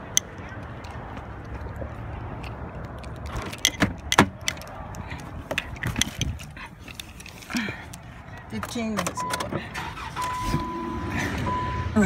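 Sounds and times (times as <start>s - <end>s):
car door clicks and knocks: 3.3s - 4.6s.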